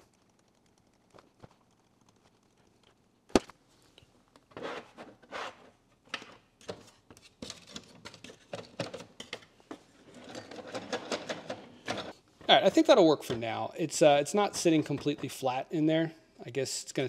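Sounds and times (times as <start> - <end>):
rubbing and sliding of mat: 4.5 - 5.8.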